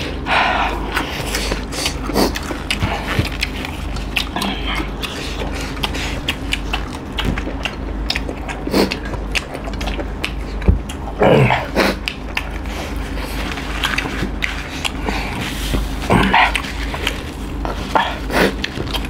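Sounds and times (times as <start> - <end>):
chewing and lip-smacking: 0.0 - 19.0.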